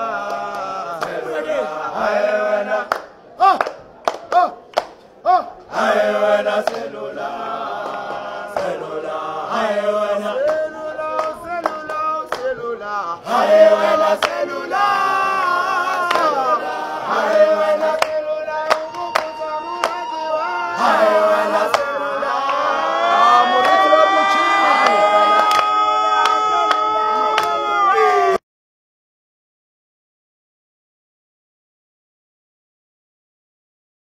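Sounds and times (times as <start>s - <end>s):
choir-like singing: 0.0s - 3.5s, 5.7s - 28.4s.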